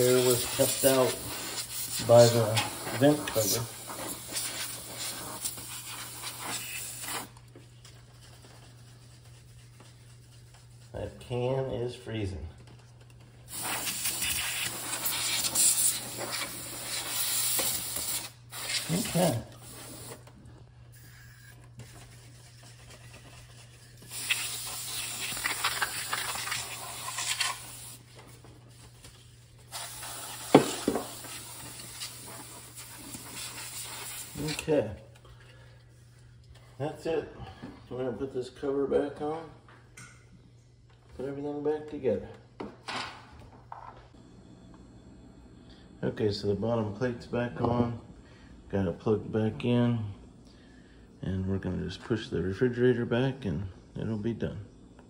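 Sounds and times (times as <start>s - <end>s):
gas duster can spraying: 0.0s - 7.4s, 13.5s - 20.3s, 23.9s - 28.1s, 29.7s - 34.6s.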